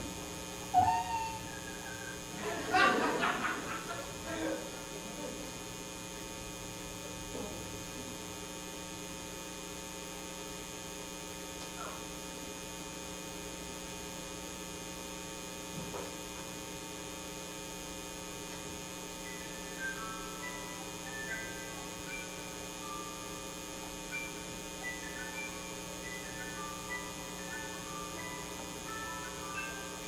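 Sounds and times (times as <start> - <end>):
electrical mains hum: 0.0 - 30.0
faint short high notes: 0.7 - 2.2.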